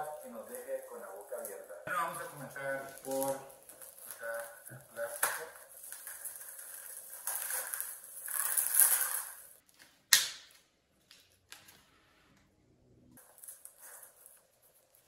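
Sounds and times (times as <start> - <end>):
bubble wrap crinkling: 0.0 - 12.0, 13.2 - 15.0
knife slitting packing tape: 5.0 - 9.5
sharp snap: 10.1 - 10.6.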